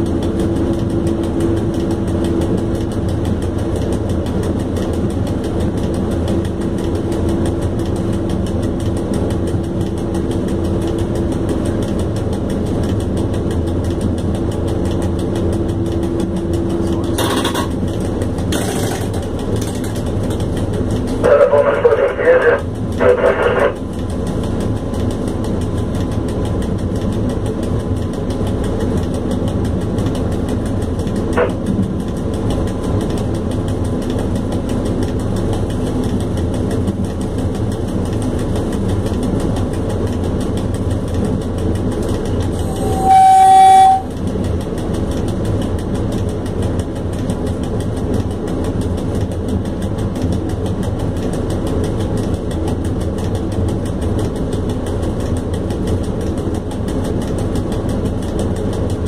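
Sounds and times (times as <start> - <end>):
train wheels rumbling: 0.0 - 59.0
locomotive horn blast: 42.6 - 44.1.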